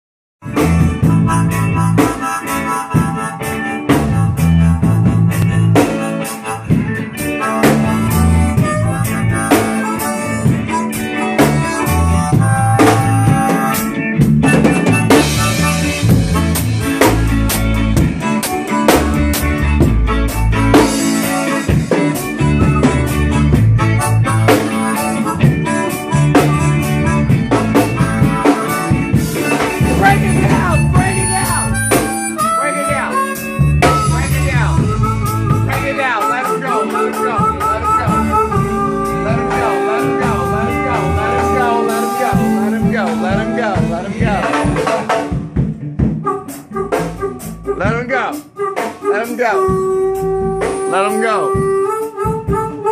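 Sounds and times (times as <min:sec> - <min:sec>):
amplified harmonica: 0:00.4 - 0:52.9
bass line: 0:00.4 - 0:52.9
drum kit: 0:00.4 - 0:52.9
reggae band playing: 0:00.4 - 0:52.9.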